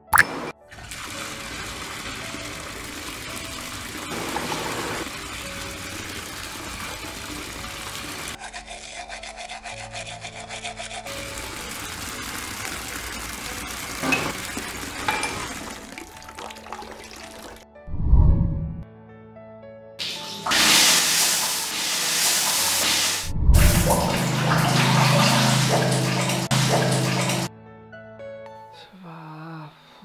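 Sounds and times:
tap water running into washbasin: 0:00.0 - 0:08.4, 0:11.1 - 0:17.6, 0:20.0 - 0:27.5
background music: 0:00.0 - 0:30.0
toothbrush scrubbing: 0:07.7 - 0:12.0.

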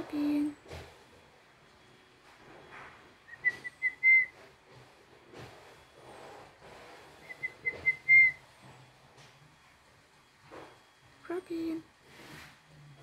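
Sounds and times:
person whistling: 0:03.3 - 0:04.3, 0:07.3 - 0:08.4.

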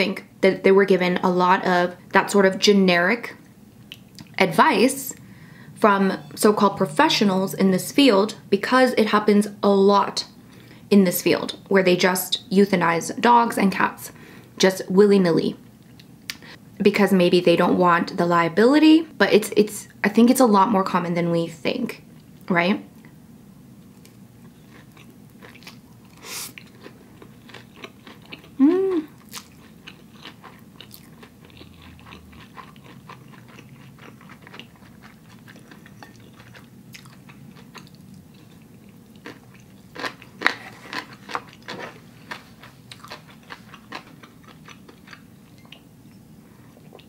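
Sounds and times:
person humming: 0:28.6 - 0:29.2.

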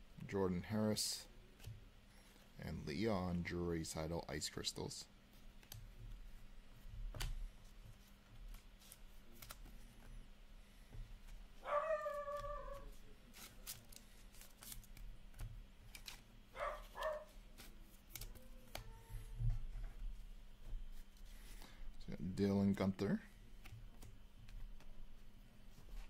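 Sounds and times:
cards flipping and clicking: 0:08.0 - 0:10.1, 0:12.1 - 0:18.9.

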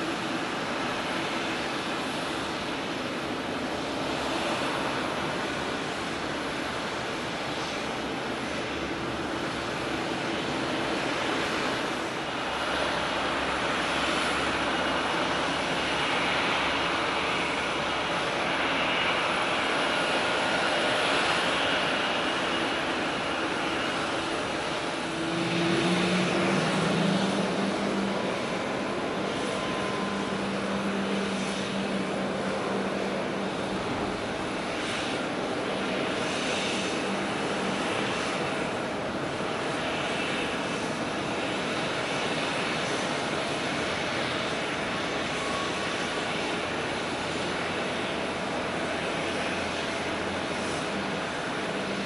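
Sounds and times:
high engine whine: 0:00.0 - 0:52.0
jet engines running: 0:00.0 - 0:52.0
lower engine tone: 0:23.0 - 0:39.8.

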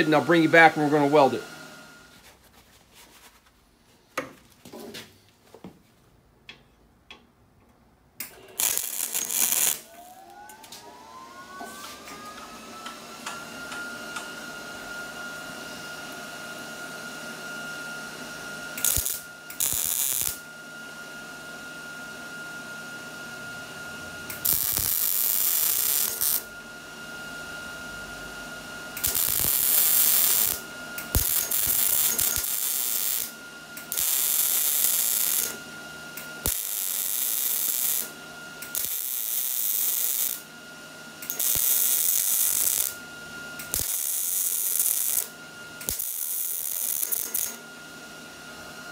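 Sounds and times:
welder arc crackling: 0:08.3 - 0:10.6, 0:18.8 - 0:20.4, 0:24.3 - 0:26.5, 0:29.0 - 0:35.6, 0:36.4 - 0:40.4, 0:41.2 - 0:43.0, 0:43.6 - 0:47.6.

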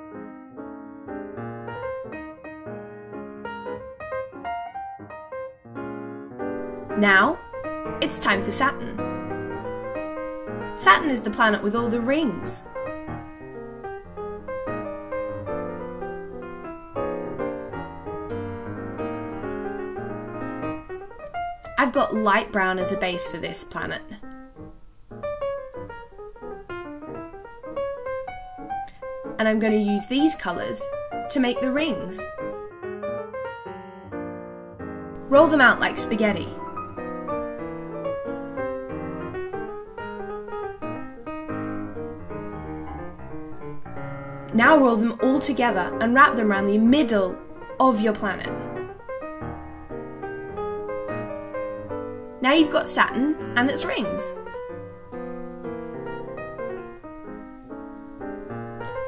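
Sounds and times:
light piano music: 0:00.0 - 0:59.0.

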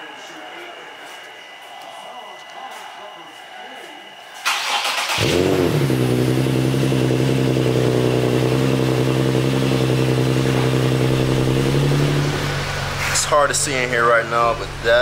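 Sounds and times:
car engine cranking: 0:04.4 - 0:15.0
car engine idling: 0:04.5 - 0:15.0.

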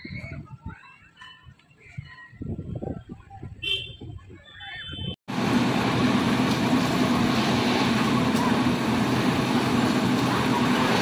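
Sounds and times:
diesel engines running: 0:05.3 - 0:11.0.

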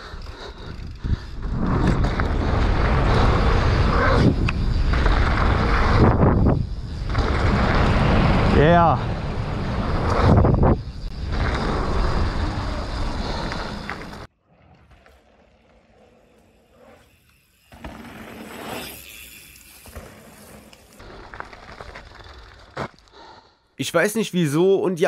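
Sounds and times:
rushing wind: 0:00.0 - 0:14.3
bike tyre noise: 0:00.0 - 0:23.6.

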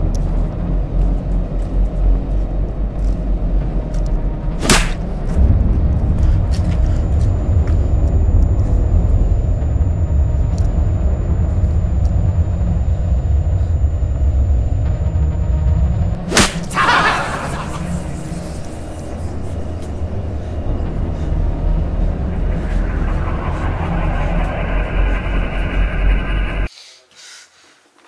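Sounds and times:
low rumbling drone: 0:00.0 - 0:26.7
sharp whoosh: 0:04.6 - 0:26.7.

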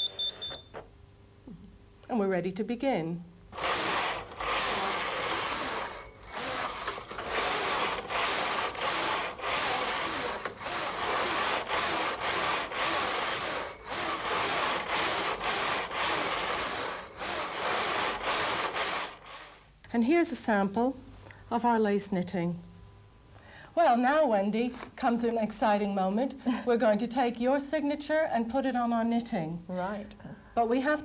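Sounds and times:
knitting machine carriage clattering: 0:03.6 - 0:19.4.

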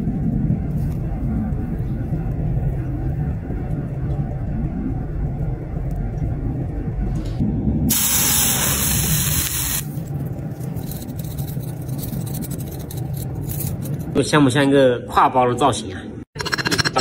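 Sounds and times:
low steady rumble: 0:00.0 - 0:14.2
water hissing on hot metal: 0:07.9 - 0:10.0.

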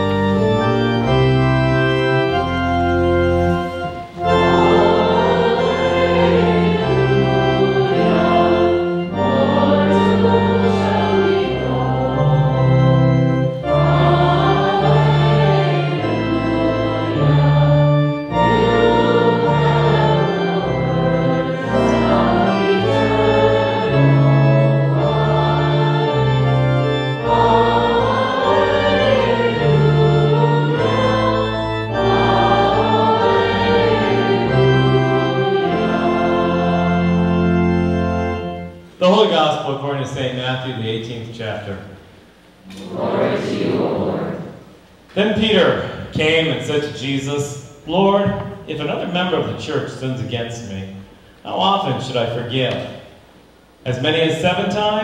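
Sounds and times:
church organ playing: 0:00.0 - 0:55.0
voices singing: 0:04.2 - 0:37.9, 0:42.6 - 0:44.7.

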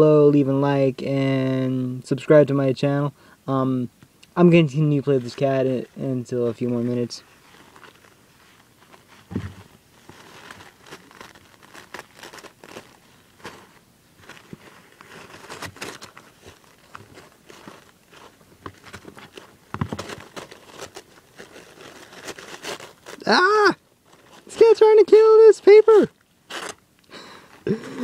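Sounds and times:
paper rustling on carpet: 0:06.6 - 0:26.8
low thump: 0:09.3 - 0:09.6.

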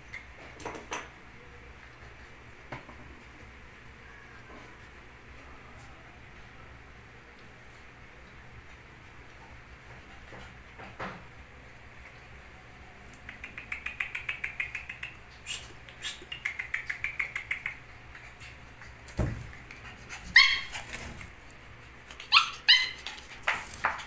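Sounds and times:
puppy claws clicking on floor: 0:13.1 - 0:24.0
puppy barking: 0:20.3 - 0:20.9, 0:22.3 - 0:23.1
puppy yip: 0:20.3 - 0:20.9, 0:22.2 - 0:23.2.

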